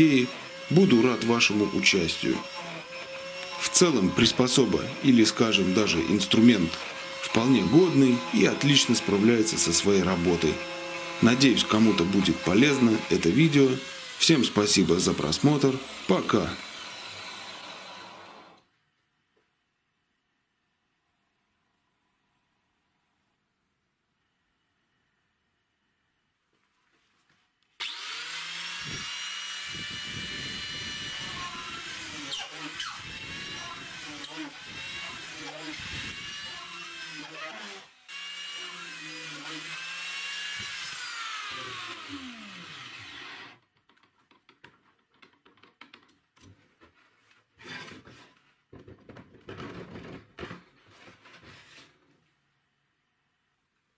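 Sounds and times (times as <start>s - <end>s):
cordless drill motor whining: 0.0s - 18.6s, 27.8s - 43.6s.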